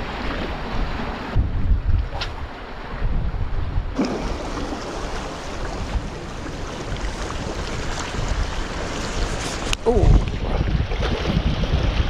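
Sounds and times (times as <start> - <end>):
wind buffeting microphone: 0.0 - 12.0
small waves washing against rocks: 4.0 - 12.0.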